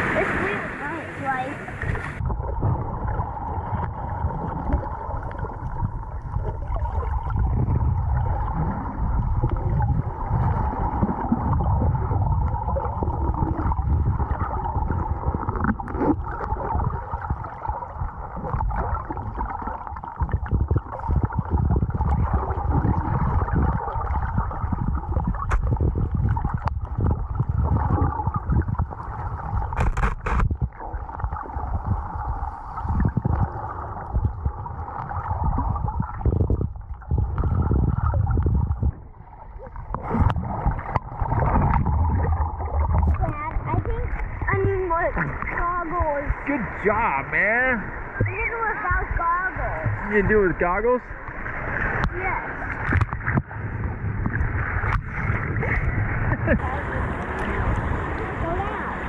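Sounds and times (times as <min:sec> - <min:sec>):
underwater churning rumble: 0:00.0 - 0:59.0
sharp clicks: 0:29.7 - 0:30.5.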